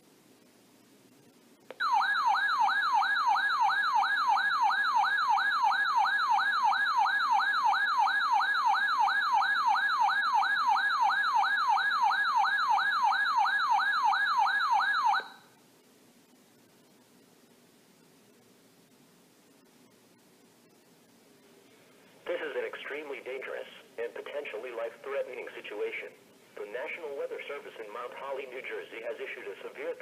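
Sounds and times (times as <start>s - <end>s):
warbling alert alarm: 1.8s - 15.5s.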